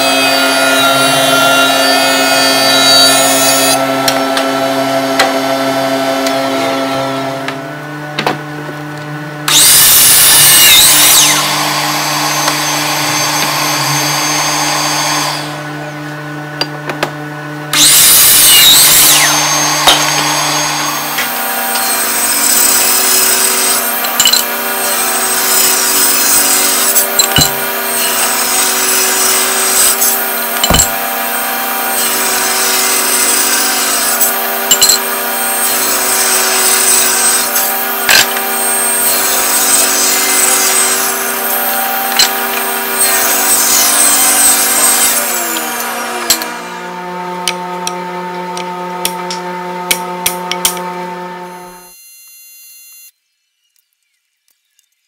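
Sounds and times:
jointer humming and cutting: 0.0 - 53.1
table saw ripping board: 9.5 - 15.5, 16.7 - 52.4.

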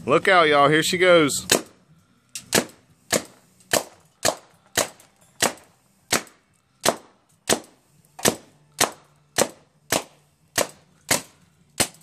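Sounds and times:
paintball marker firing: 1.5 - 1.8, 2.4 - 12.0.

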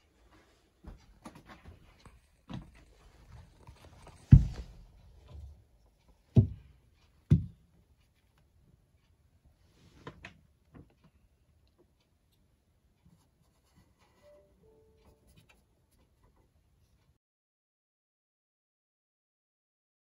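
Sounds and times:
thumps and knocks in cabinet: 4.2 - 4.8, 6.3 - 6.7.

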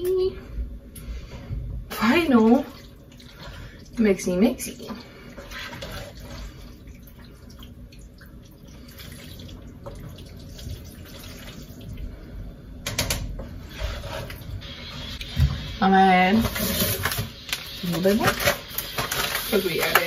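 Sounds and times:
wet squelching of stirred pasta: 2.4 - 12.2
utensil scraping a pan: 13.6 - 15.2.

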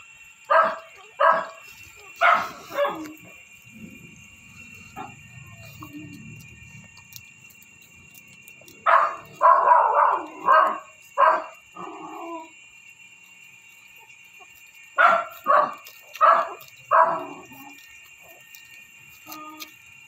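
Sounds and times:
dog yapping: 0.5 - 4.0, 4.8 - 7.1, 8.6 - 12.5, 14.5 - 18.5, 19.1 - 19.8.

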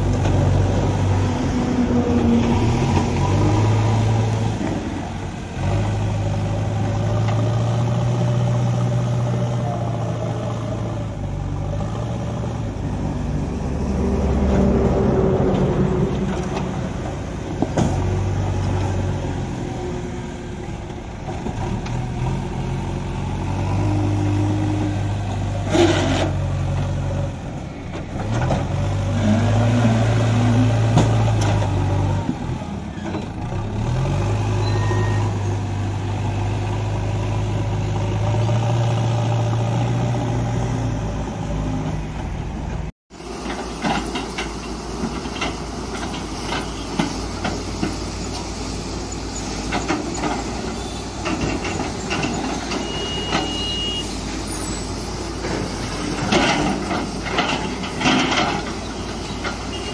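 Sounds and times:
diesel engine revving: 0.0 - 43.3
heavy diesel engines running: 0.0 - 59.9
loader bucket working gravel: 0.0 - 59.9.

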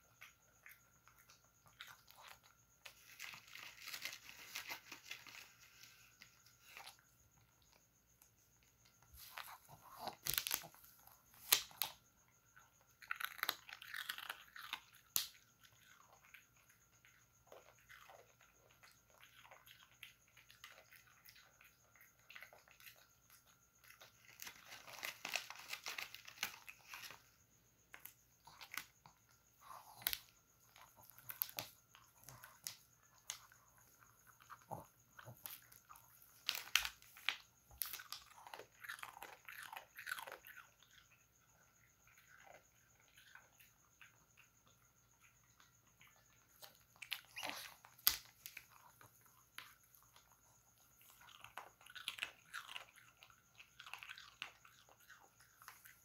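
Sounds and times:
plastic sheet crinkling: 3.0 - 6.0.

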